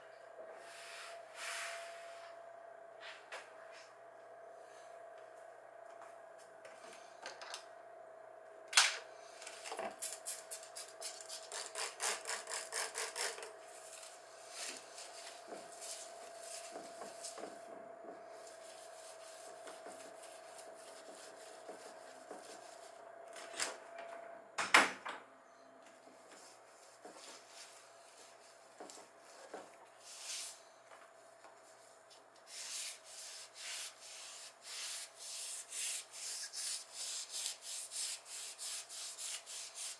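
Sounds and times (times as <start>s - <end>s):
pad scrubbing a painted wall: 32.5s - 39.9s.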